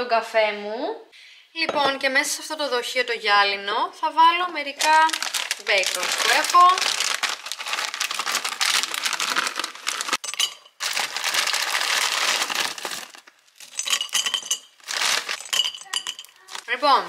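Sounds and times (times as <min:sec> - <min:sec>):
snacks pouring into glass jar: 0:04.8 - 0:16.7
plastic bag crinkling: 0:04.8 - 0:17.0.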